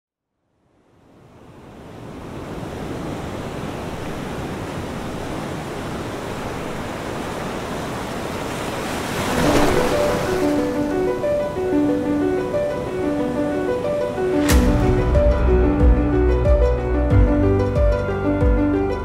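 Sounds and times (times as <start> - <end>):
waves washing on sand: 1.8 - 14.5
piano music: 9.3 - 19.0.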